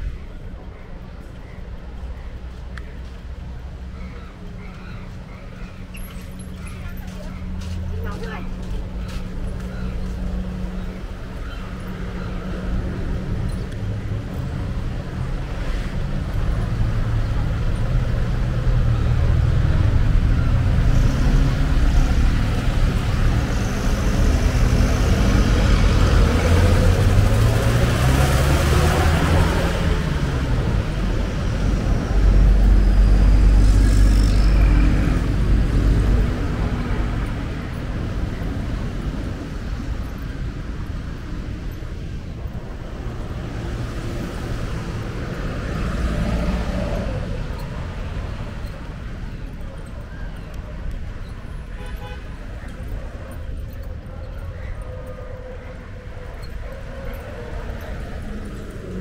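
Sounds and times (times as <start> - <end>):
traffic engines rumbling: 0.0 - 59.0
engine revving: 18.8 - 38.5.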